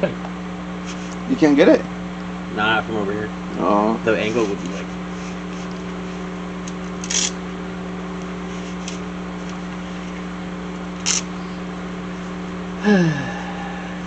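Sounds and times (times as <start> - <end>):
machine hum: 0.0 - 14.0.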